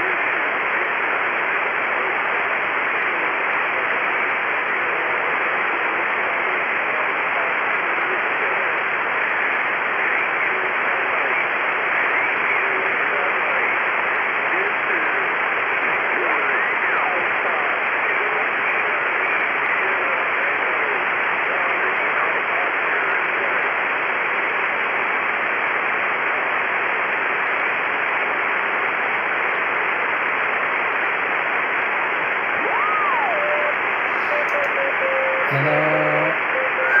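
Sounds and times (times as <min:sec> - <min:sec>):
radio receiver hiss: 0:30.7 - 0:37.0
faint wavering whistles: 0:32.6 - 0:37.0.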